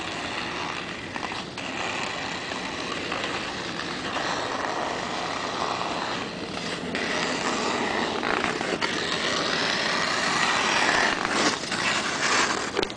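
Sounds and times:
ice skate blades scraping ice: 0:00.0 - 0:12.9.

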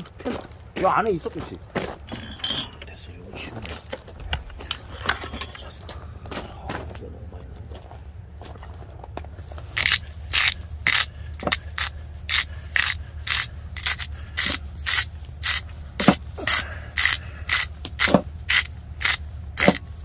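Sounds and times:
salt grinder grinding: 0:09.8 - 0:19.8.

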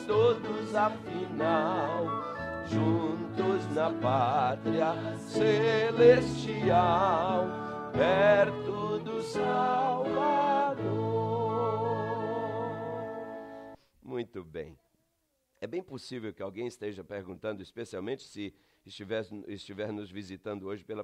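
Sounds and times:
congregation singing a hymn: 0:00.0 - 0:13.5
instrumental accompaniment: 0:00.0 - 0:13.8.

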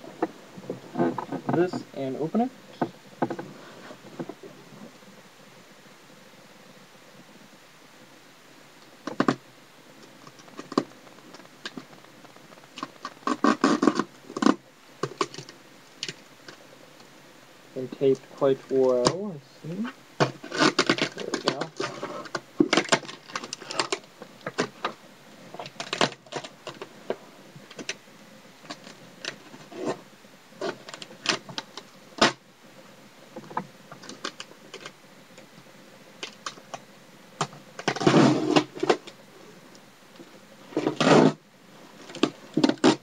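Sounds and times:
packing paper and cardboard rustling: 0:20.2 - 0:25.0.

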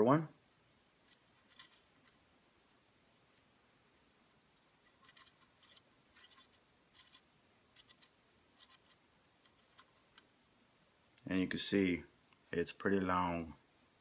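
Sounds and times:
allen key clicking in screw: 0:04.8 - 0:10.3.

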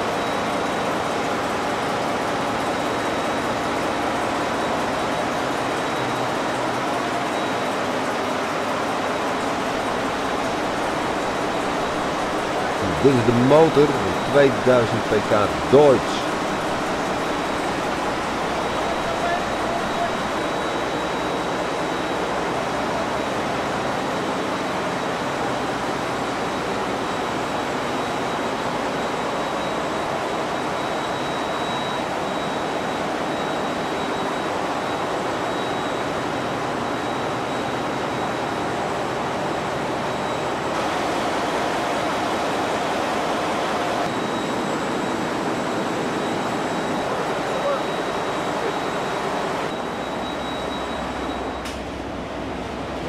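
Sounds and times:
cooling fans and pumps: 0:00.0 - 0:53.0
thin high whine: 0:09.4 - 0:23.4.

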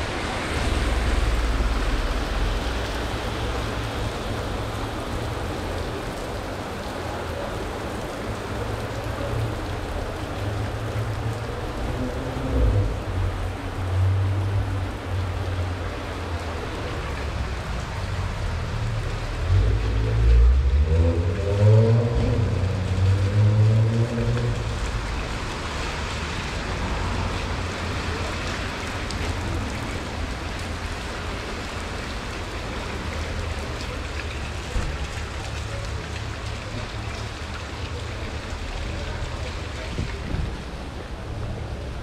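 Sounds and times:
low rumble: 0:00.0 - 0:04.8
heavy rain on pavement: 0:00.0 - 0:42.0.

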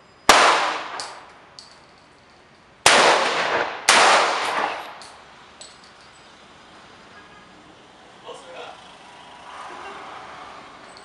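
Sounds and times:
rifle shots ringing out: 0:00.3 - 0:01.3, 0:02.8 - 0:05.2.

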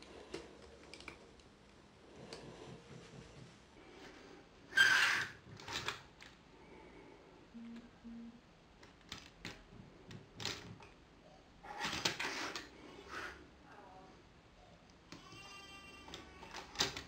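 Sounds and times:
short low beeps: 0:07.6 - 0:08.4.

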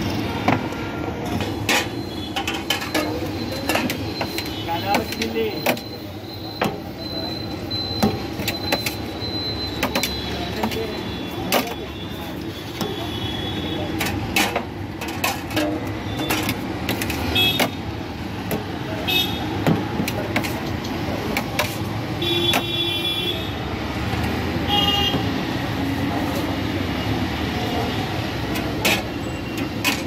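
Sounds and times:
street traffic rumble: 0:00.0 - 0:30.0.

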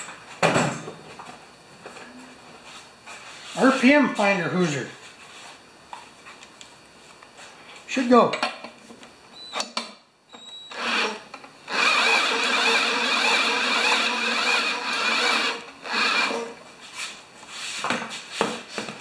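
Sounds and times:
cordless drill spinning engine: 0:10.7 - 0:16.5.

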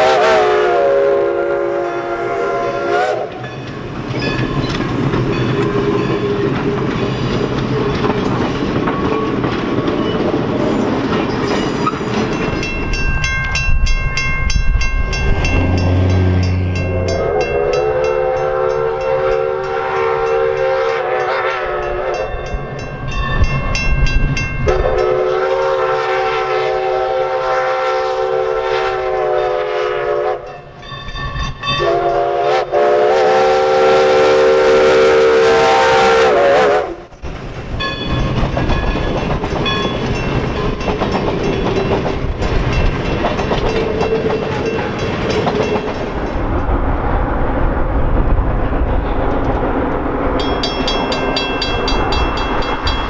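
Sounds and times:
steam locomotive whistle blasts: 0:00.0 - 0:03.5, 0:15.3 - 0:22.5, 0:24.6 - 0:30.6, 0:31.7 - 0:37.1
train cars rolling over rails: 0:03.3 - 0:20.7, 0:37.1 - 0:53.0
crossing bell ringing: 0:03.3 - 0:26.0, 0:30.4 - 0:32.4, 0:37.8 - 0:46.8, 0:50.2 - 0:53.0.

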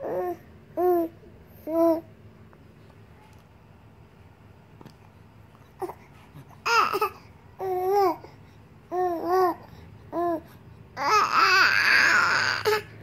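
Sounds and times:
baby cooing and babbling: 0:00.0 - 0:02.1, 0:05.8 - 0:08.3, 0:08.9 - 0:13.0.

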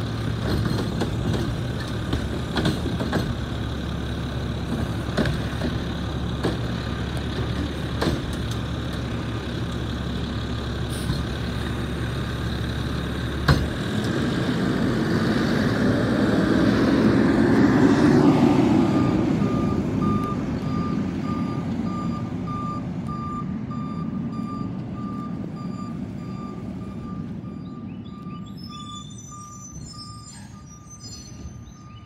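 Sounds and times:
garbage truck engine: 0:00.0 - 0:32.0
beeping alarm: 0:19.0 - 0:32.0.

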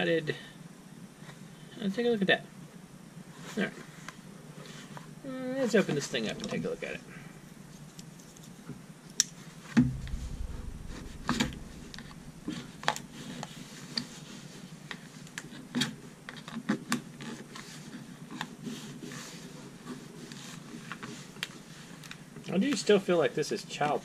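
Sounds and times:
thump: 0:09.8 - 0:13.0.

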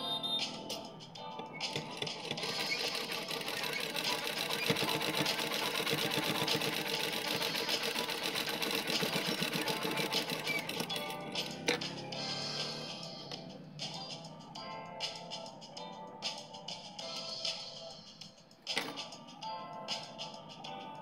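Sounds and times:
sewing machine stitching: 0:01.7 - 0:11.8.

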